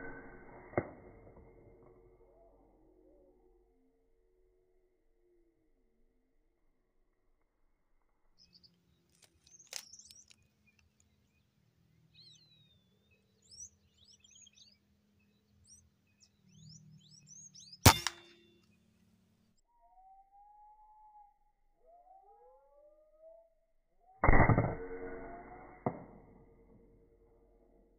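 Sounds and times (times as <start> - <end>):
small birds chirping: 8.4 - 18.9
sharp click: 17.9 - 18.4.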